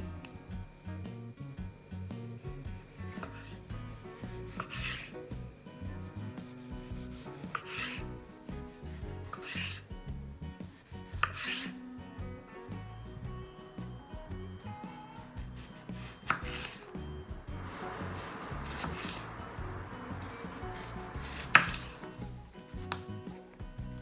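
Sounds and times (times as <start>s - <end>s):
soft background music: 0.0s - 24.0s
knife cutting on cutting board: 2.8s - 5.2s, 6.4s - 9.8s, 10.7s - 11.8s, 15.6s - 16.8s, 20.7s - 22.1s.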